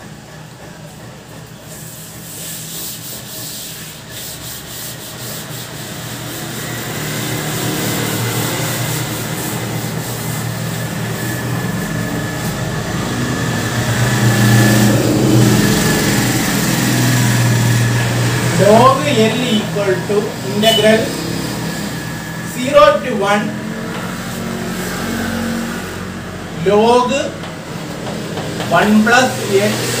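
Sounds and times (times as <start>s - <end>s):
cloth rubbing on chalkboard: 1.8s - 12.6s
steady low hum: 7.6s - 30.0s.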